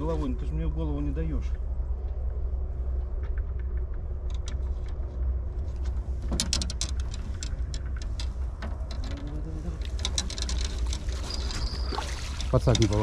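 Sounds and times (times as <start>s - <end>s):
steady low rumble: 0.0s - 13.0s
fish splashing in water: 10.7s - 13.0s.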